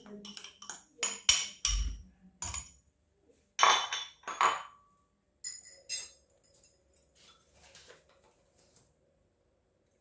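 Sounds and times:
spoon knocking ceramic dishes: 0:00.0 - 0:02.8, 0:03.6 - 0:06.2.

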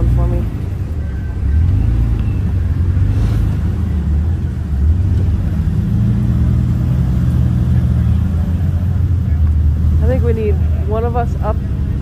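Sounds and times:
vehicle engine running at low revs: 0:00.0 - 0:12.0.

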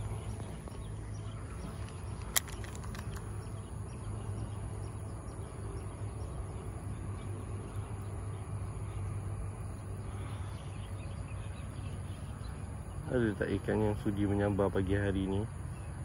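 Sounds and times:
insects chirring: 0:00.0 - 0:16.0
low steady hum: 0:00.0 - 0:16.0
sharp click: 0:01.8 - 0:03.4.

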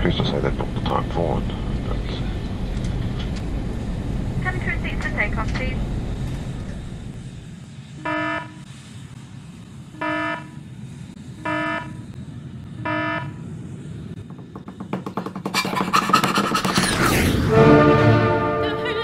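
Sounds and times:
steady low rumble: 0:00.0 - 0:14.4.

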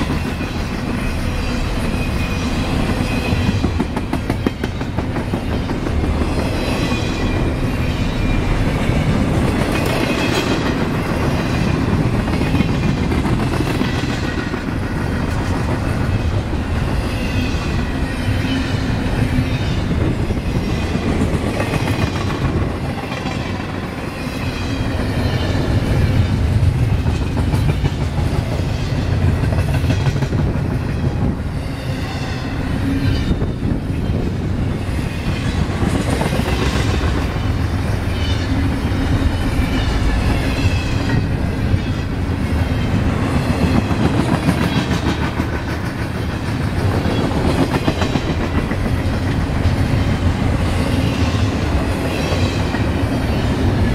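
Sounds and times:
steel wheels rumbling on rail: 0:00.0 - 0:53.9.

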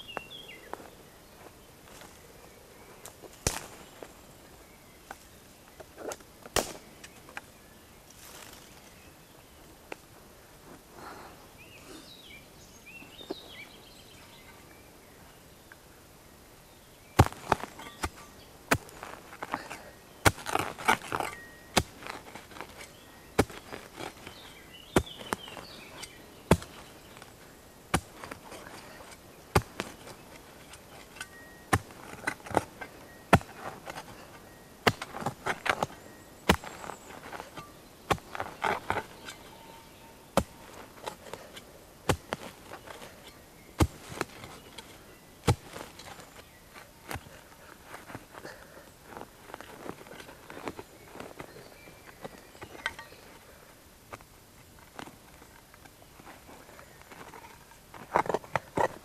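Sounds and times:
spade chopping into soil: 0:03.4 - 0:04.0, 0:06.1 - 0:07.2, 0:17.2 - 0:27.3, 0:27.9 - 0:39.5, 0:40.3 - 0:47.3
turf scraping and rustling: 0:17.2 - 0:53.4, 0:54.1 - 0:59.0.

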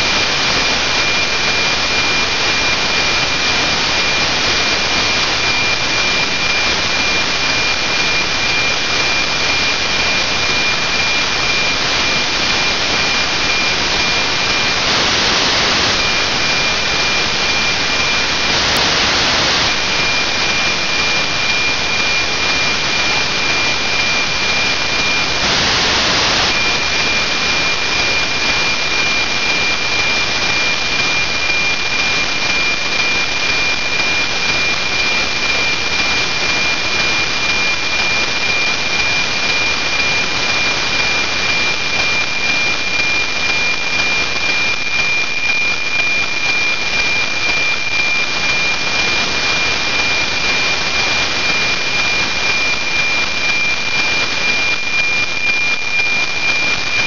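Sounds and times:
radio static hiss: 0:00.0 - 0:57.0
steady high tone: 0:03.8 - 0:32.0.

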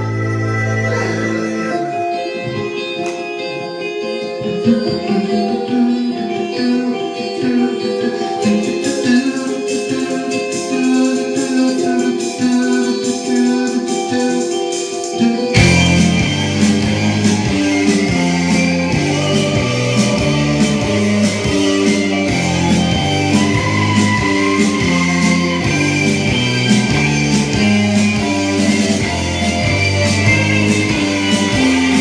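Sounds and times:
rock music with guitar: 0:00.0 - 0:32.0.

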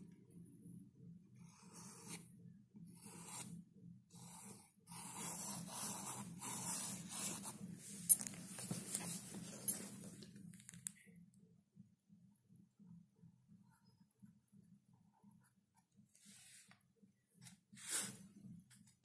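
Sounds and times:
pen scratching on paper: 0:01.4 - 0:02.3, 0:02.9 - 0:03.5, 0:04.1 - 0:10.0.

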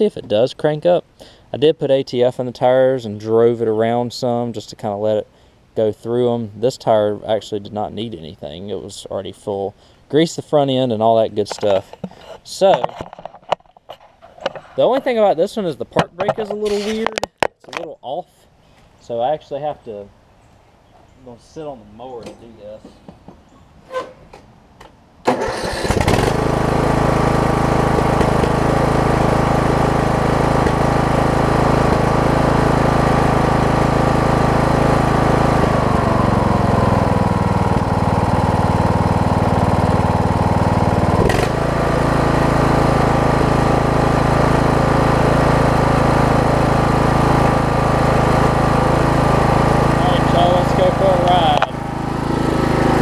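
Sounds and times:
riding mower engine running: 0:11.0 - 0:17.2, 0:25.3 - 0:53.0
electric starter cranking: 0:25.2 - 0:53.0.

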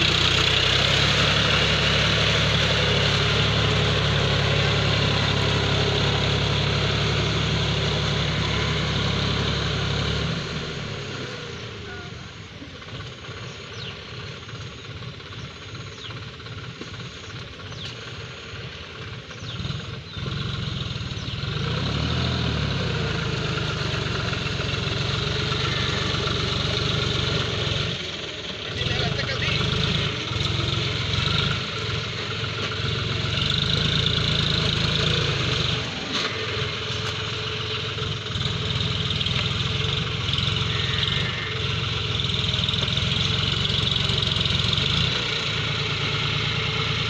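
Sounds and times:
tractor diesel engine under load: 0:00.0 - 0:47.0.

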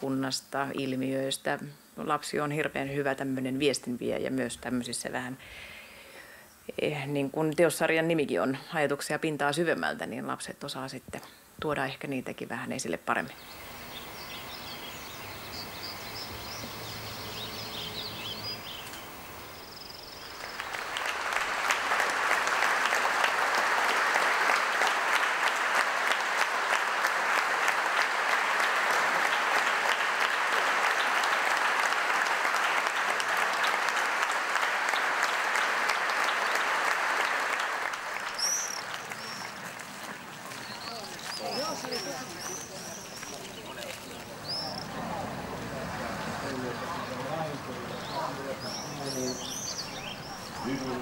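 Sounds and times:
faint bird chirps: 0:13.3 - 0:20.9
crowd applauding: 0:13.4 - 0:51.0.

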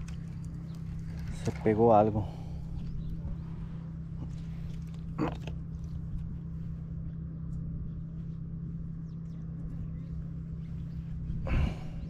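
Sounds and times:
low background rumble: 0:00.0 - 0:12.0.

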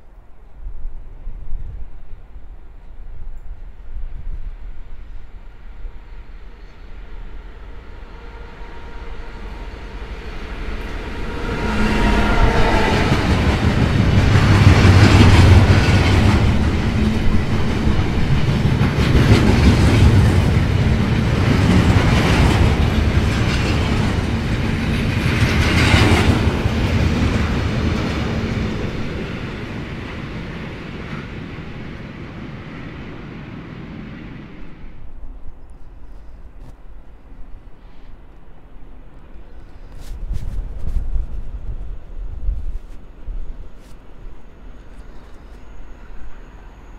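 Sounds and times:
locomotive humming: 0:04.9 - 0:35.4.

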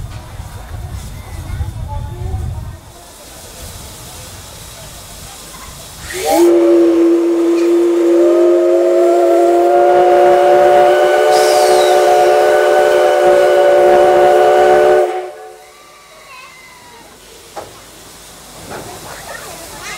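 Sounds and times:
steam locomotive whistle: 0:06.1 - 0:16.2.

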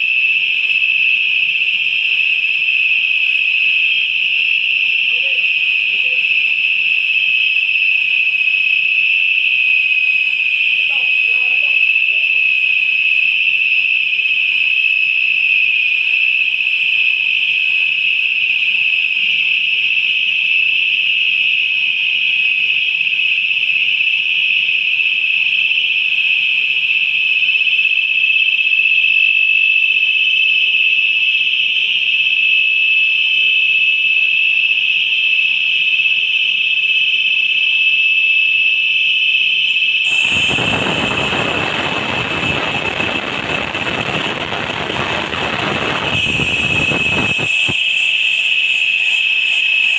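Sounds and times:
high-pitched valve whistle: 0:00.0 - 0:49.9
loud rushing vapour hiss: 0:40.1 - 0:42.7.

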